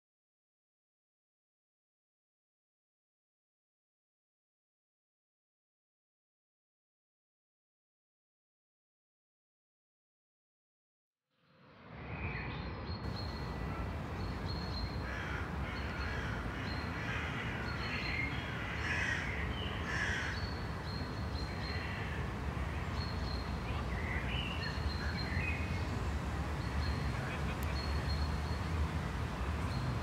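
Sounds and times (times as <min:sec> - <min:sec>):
vehicle road and wind rumble: 0:11.7 - 0:30.0
crows cawing: 0:15.0 - 0:20.4.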